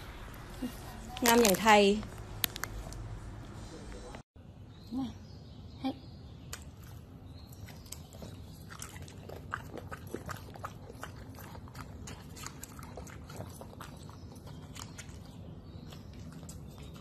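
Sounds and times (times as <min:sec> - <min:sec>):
dog chewing food: 0:06.8 - 0:17.0.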